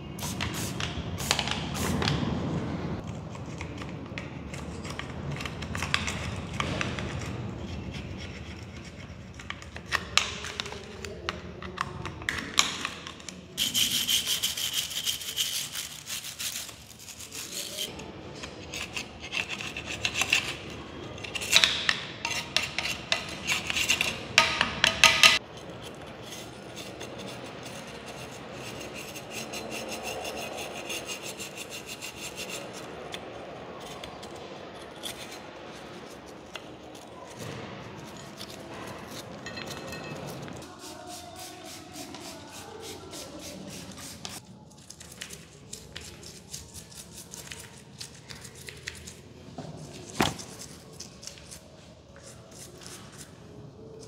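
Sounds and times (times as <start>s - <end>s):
sponge scrubbing metal: 13.6s - 44.5s.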